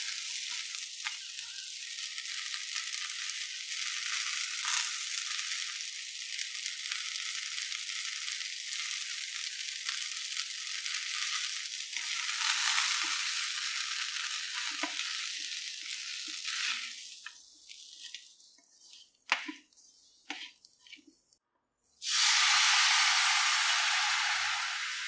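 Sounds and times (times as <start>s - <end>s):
shallots sizzling in a pan: 0.0s - 21.4s, 22.0s - 25.0s
water poured into hot pan: 22.0s - 25.0s.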